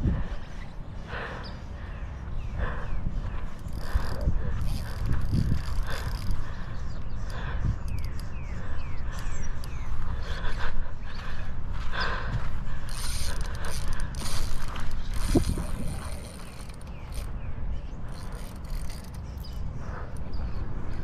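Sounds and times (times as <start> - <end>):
fishing reel clicking and whirring: 3.5 - 8.3, 12.8 - 17.4, 18.0 - 19.6.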